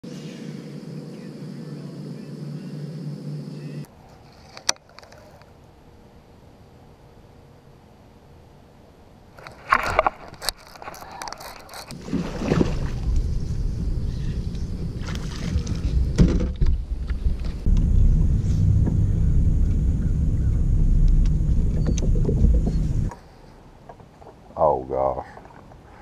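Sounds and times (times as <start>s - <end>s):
boat engine rumbling: 10.0s - 23.9s.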